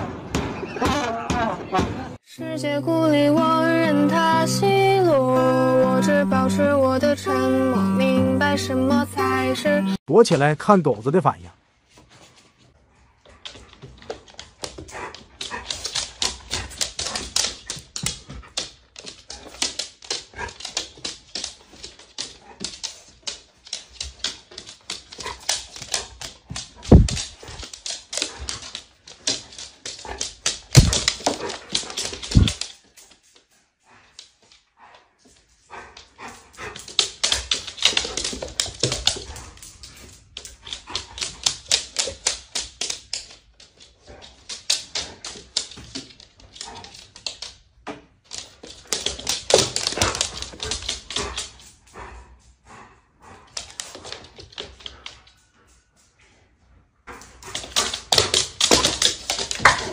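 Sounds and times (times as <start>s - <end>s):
dog claws clicking on wooden floor: 13.2s - 52.4s, 53.3s - 55.8s, 57.1s - 59.9s.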